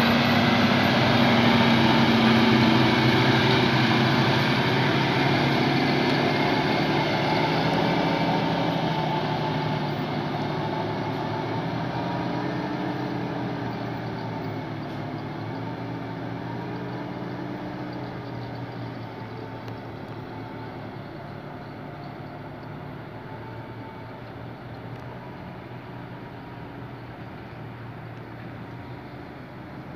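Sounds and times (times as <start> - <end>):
diesel truck driving off: 0.0 - 29.9.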